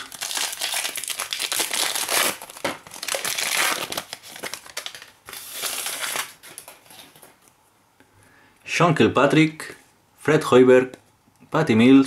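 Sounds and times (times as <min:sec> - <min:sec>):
foil wrapper crinkling: 0:00.0 - 0:07.4.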